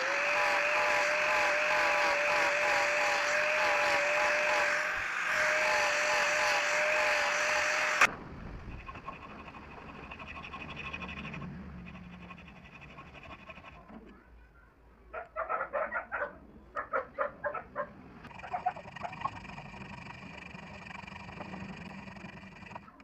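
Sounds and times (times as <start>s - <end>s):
hand file rasping on metal: 8.7s - 14.0s.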